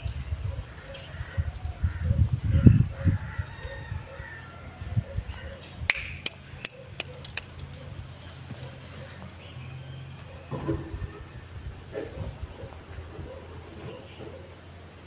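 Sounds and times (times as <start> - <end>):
sharp clicks: 5.9 - 7.7.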